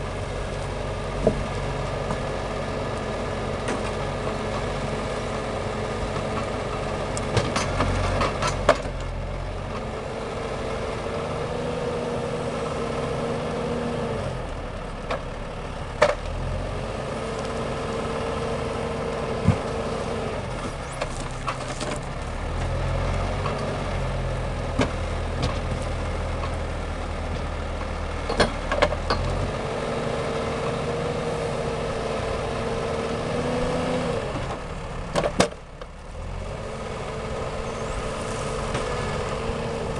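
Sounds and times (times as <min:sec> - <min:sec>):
tractor diesel engine running: 0:00.0 - 0:39.9
hydraulic crane whine: 0:25.8 - 0:39.9.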